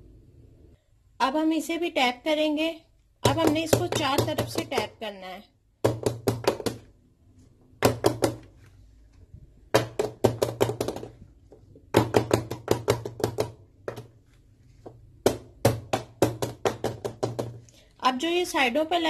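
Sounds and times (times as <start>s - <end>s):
metal pan knocking on countertop: 9.7s - 11.2s, 11.9s - 14.1s, 15.2s - 17.6s.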